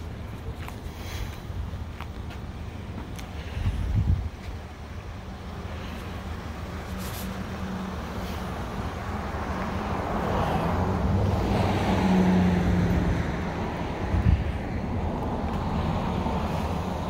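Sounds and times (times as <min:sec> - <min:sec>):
vehicle passing by: 0:05.7 - 0:17.0.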